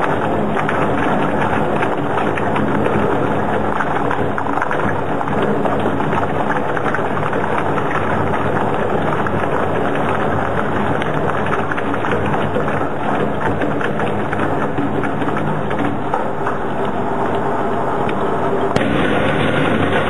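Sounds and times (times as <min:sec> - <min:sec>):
low machine drone: 0:16.3 - 0:20.0.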